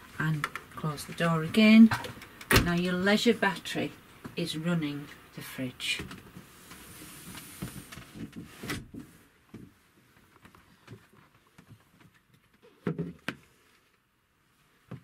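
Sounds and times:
faint handling rustling and clicks: 6.0 - 12.8.

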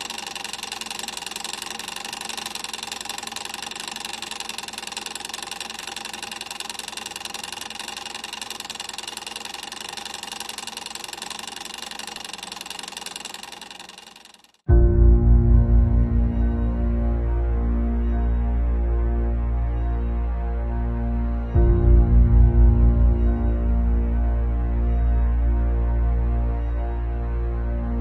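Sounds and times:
machine rattling rapidly: 0.0 - 14.7.

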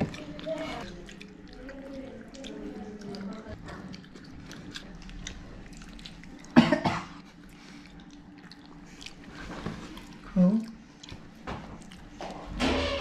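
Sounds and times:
chewing and mouth sounds: 0.0 - 12.6
person coughing: 6.6 - 7.2.

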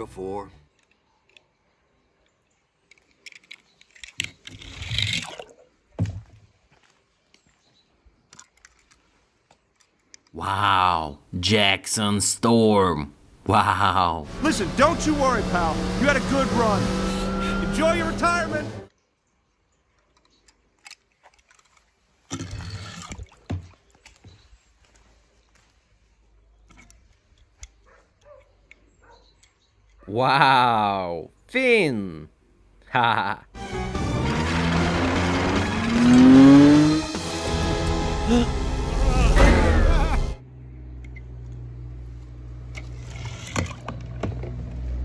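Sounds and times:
water splashing in a plastic tub: 4.9 - 6.6, 22.2 - 24.3.

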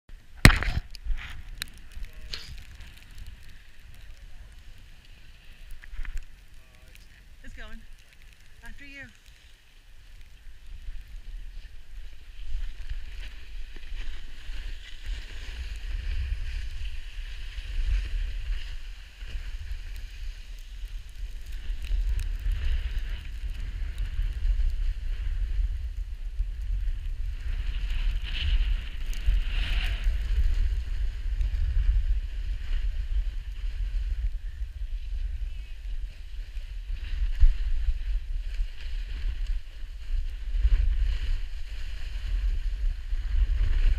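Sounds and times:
snowboard scraping over snow: 9.3 - 43.9
wind buffeting microphone: 10.5 - 43.9.

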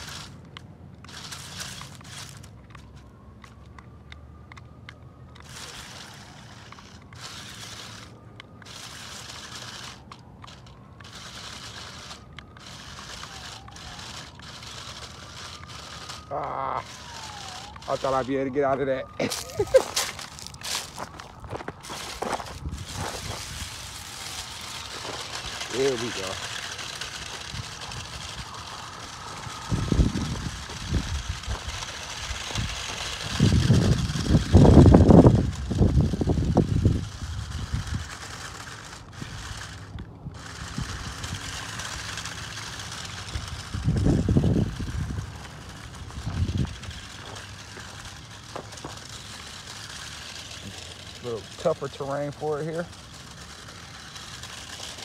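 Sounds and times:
toy car crunching through dry leaves: 0.0 - 0.4, 1.0 - 3.9, 5.3 - 55.0
small electric motor whine: 0.0 - 55.0
wind buffeting microphone: 20.0 - 51.1.

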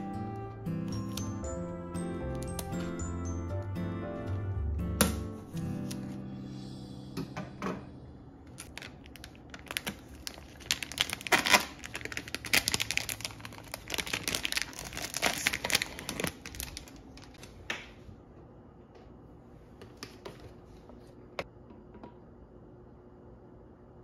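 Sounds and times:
plastic label tearing and crinkling: 8.6 - 17.5.

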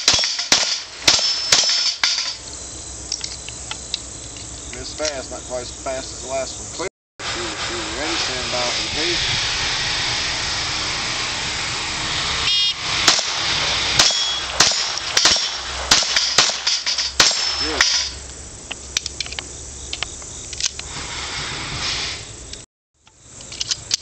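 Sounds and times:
pistol shots hitting steel: 0.0 - 2.4, 13.1 - 13.4, 14.0 - 18.2
shot timer beep: 12.5 - 12.8, 14.0 - 14.5.

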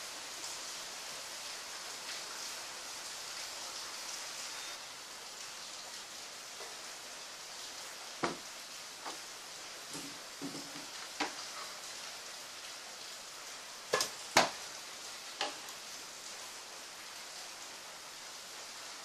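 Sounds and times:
steady hiss: 0.0 - 19.0
knocks and taps on wooden table: 8.2 - 8.4.

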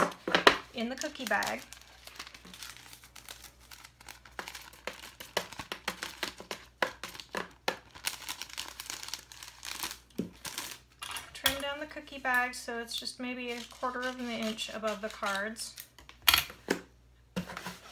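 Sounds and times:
cellophane bag crinkling: 0.1 - 11.0.

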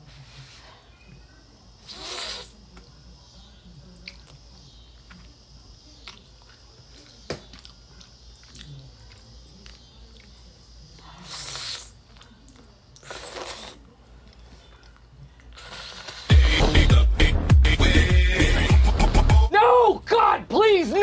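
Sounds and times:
quiet chewing: 0.6 - 16.4
noodles slurped: 1.9 - 2.6, 13.0 - 13.9, 15.5 - 16.8.

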